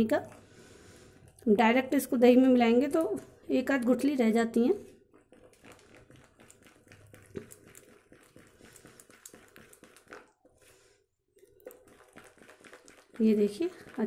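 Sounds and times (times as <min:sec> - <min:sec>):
wet batter squishing: 0:02.8 - 0:14.0.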